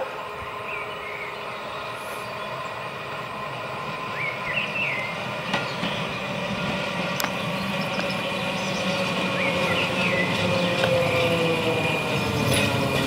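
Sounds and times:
tram motor hum and wheel noise: 0.0 - 13.0.

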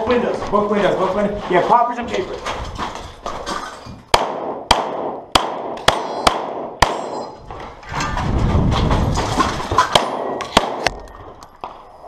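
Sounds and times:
pistol shots: 4.1 - 7.3, 9.9 - 11.0.

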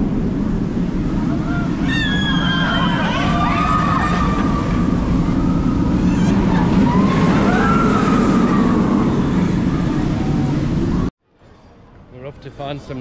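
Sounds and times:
roller coaster rumbling on track: 0.0 - 13.0
riders screaming: 1.1 - 11.0.

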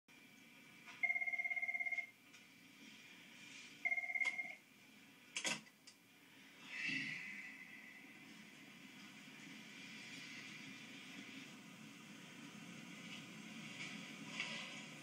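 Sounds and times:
electronic telephone ringing: 1.0 - 2.2, 3.8 - 4.6.

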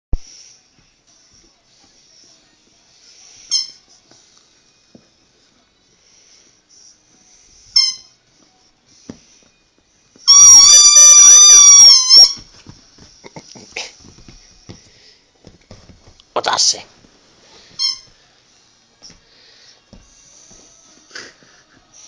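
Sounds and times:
squeaky toy squeaking: 3.5 - 3.8, 7.8 - 8.1, 10.3 - 12.5, 17.8 - 18.1.

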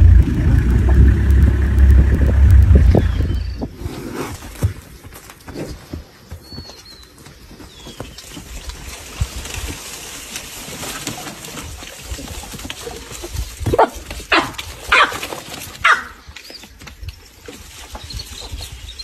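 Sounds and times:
low background rumble and hiss: 0.0 - 3.7.

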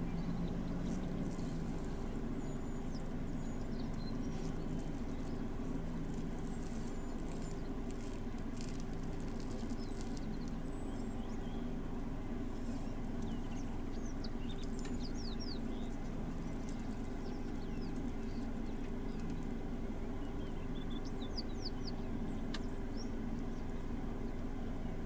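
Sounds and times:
faint bird chirps: 0.0 - 11.8, 12.5 - 24.9
engine idling hum: 0.0 - 25.0
light crackles: 0.6 - 11.2, 12.3 - 19.9.

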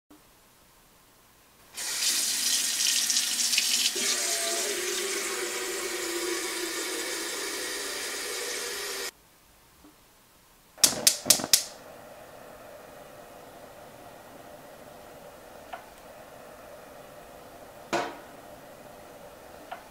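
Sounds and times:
water running into kettle: 1.8 - 9.1, 11.0 - 19.9
gas stove igniter clicking: 10.8 - 19.9.

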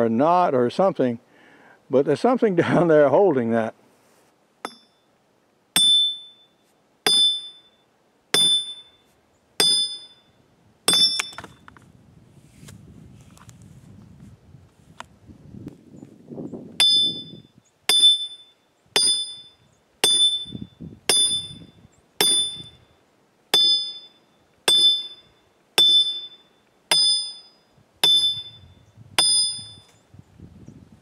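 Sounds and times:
maul clanging on steel wedge: 4.6 - 5.1, 5.8 - 10.2, 10.9 - 11.6, 16.8 - 17.3, 17.9 - 21.6, 22.2 - 22.8, 23.5 - 28.6, 29.2 - 30.0.

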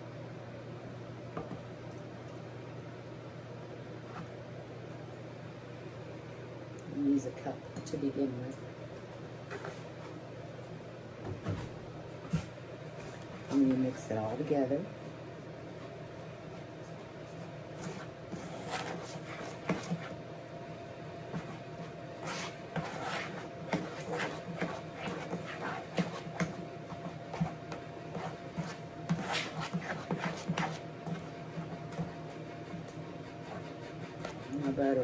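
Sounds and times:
spoon scraping a mixing bowl: 17.7 - 20.2, 22.2 - 32.0.

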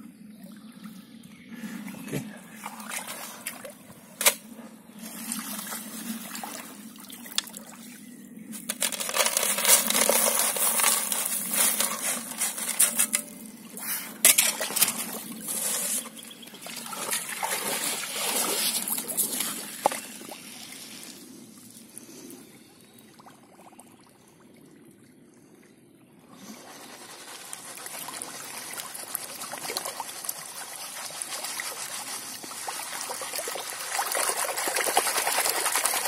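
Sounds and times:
water sloshing: 1.9 - 4.4, 8.6 - 21.2
shovel scraping gravel: 8.6 - 16.2.

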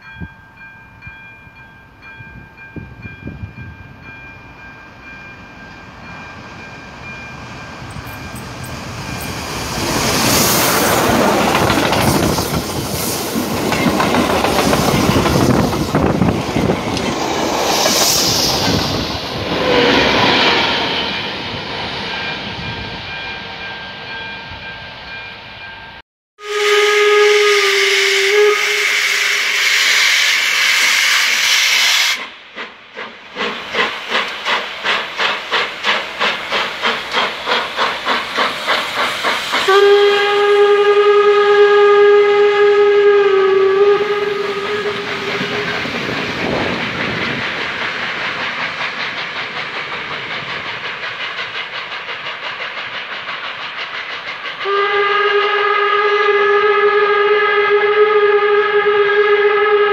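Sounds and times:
steam hissing: 6.1 - 22.8, 26.4 - 57.0
steam locomotive whistle: 26.4 - 32.4, 39.5 - 46.8, 54.6 - 59.9
locomotive exhaust chuffs: 26.6 - 57.0.

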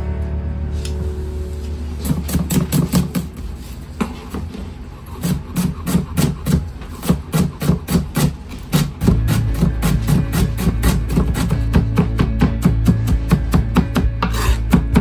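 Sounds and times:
quiet background music: 0.0 - 15.0
knife chopping on cutting board: 5.2 - 15.0.

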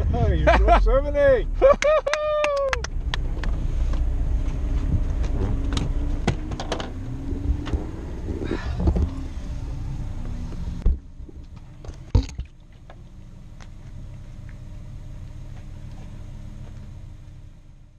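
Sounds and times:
car engine idling: 0.0 - 17.9.

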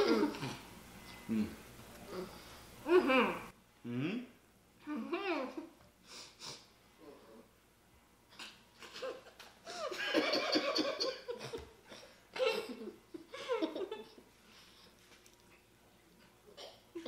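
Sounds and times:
people laughing with full mouths: 8.8 - 14.2.

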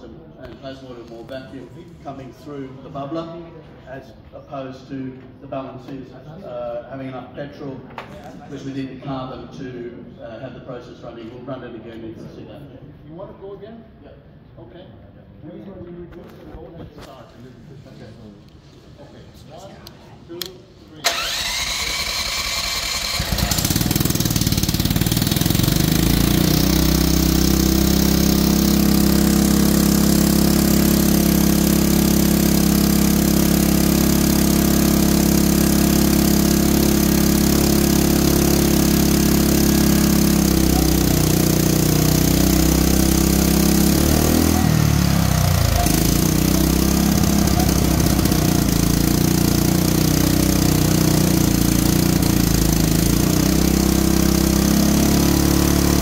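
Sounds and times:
generator engine running: 21.0 - 56.0.

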